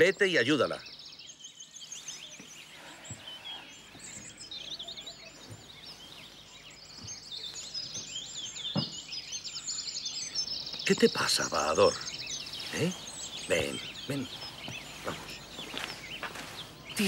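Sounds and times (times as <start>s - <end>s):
small birds chirping: 0.0s - 17.0s
faint soft thuds: 8.0s - 9.1s.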